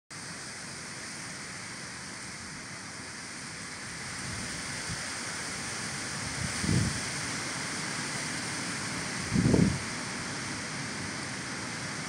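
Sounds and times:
flowing stream water: 0:00.2 - 0:12.0.

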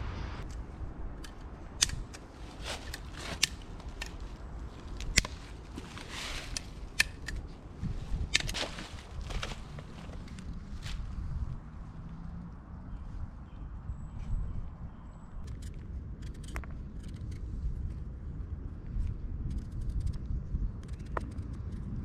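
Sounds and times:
low rumble: 0:00.0 - 0:22.0
dry sticks snapping: 0:00.4 - 0:11.0.

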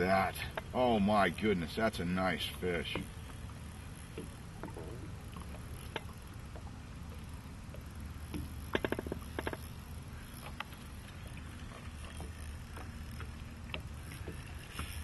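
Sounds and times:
fishing reel clicking: 0:00.0 - 0:15.0
water lapping against boat: 0:00.0 - 0:15.0.

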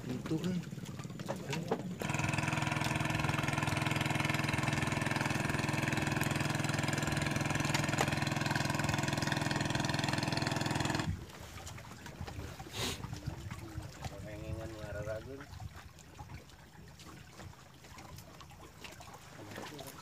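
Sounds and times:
engine running steadily: 0:00.0 - 0:11.4.

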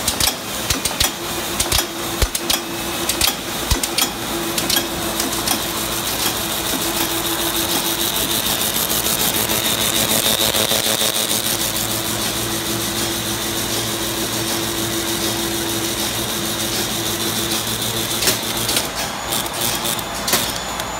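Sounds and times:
sharp machine knocks: 0:00.0 - 0:05.6
high machine whine: 0:00.0 - 0:20.9
machine conveyors clattering: 0:00.0 - 0:20.9
machine hum: 0:00.0 - 0:20.9.

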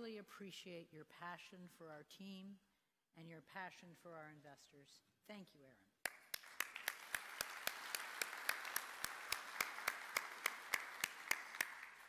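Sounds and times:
crisp claps close to microphone: 0:06.0 - 0:12.0
audience applauding: 0:06.1 - 0:12.0.

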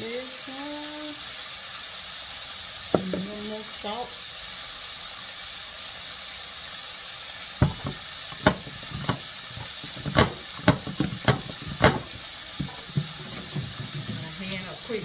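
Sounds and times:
livers sizzling in hot oil: 0:00.0 - 0:15.0
sharp clacks and knocks: 0:07.6 - 0:14.4.

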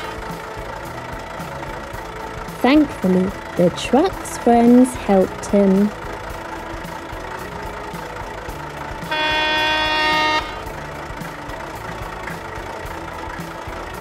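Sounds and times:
truck horn honking: 0:00.0 - 0:00.2, 0:08.9 - 0:11.0
truck engine idling: 0:00.0 - 0:14.0.

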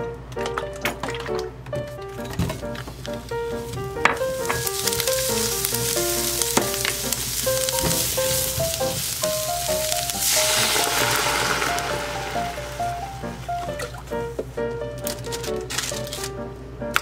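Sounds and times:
background music with plucked melody: 0:00.0 - 0:17.0
onion sizzling in a frying pan: 0:02.7 - 0:14.4
milk pouring: 0:04.2 - 0:14.3.

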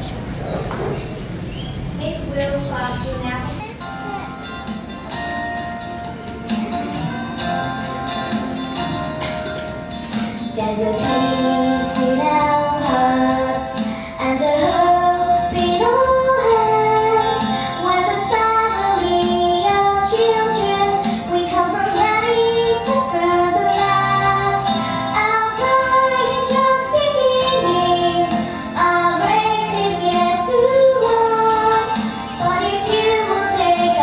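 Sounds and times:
held instrumental notes: 0:02.4 - 0:34.0
children's choir singing: 0:10.5 - 0:34.0.

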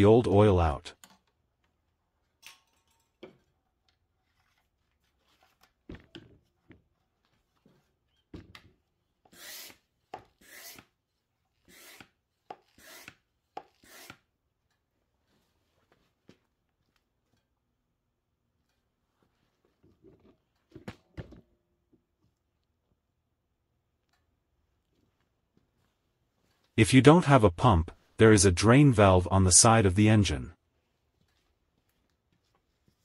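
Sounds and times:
faint handling clicks and rubs: 0:30.9 - 0:33.0.

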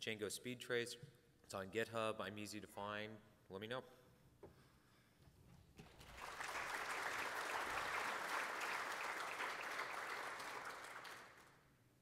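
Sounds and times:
audience applauding: 0:05.8 - 0:11.6.

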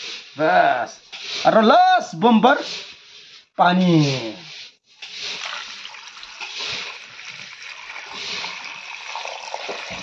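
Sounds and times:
water pouring into a steel bowl: 0:05.0 - 0:10.0.

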